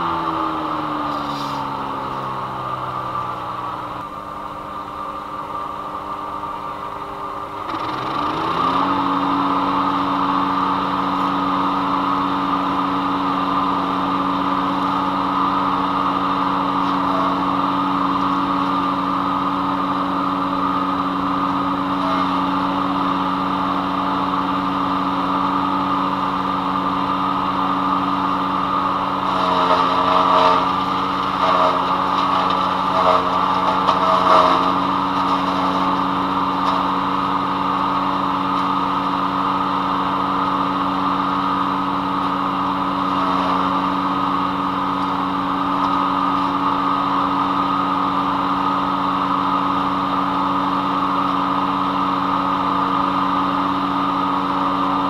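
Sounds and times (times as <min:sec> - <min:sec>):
wood chipper running: 0:00.0 - 0:55.0
branches going through chipper blades: 0:04.9 - 0:47.9.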